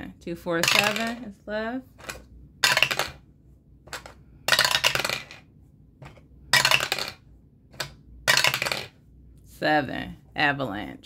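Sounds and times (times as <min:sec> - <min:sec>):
die clattering in dice tower: 0:00.6 - 0:01.2, 0:02.0 - 0:03.2, 0:03.9 - 0:09.0.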